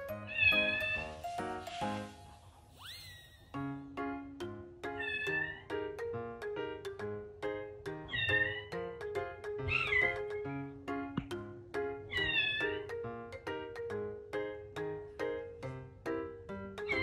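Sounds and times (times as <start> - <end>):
kitten meowing: 0.3 - 1.0, 5.0 - 5.6, 8.1 - 8.8, 12.1 - 12.8
music with plucked notes: 3.7 - 17.0.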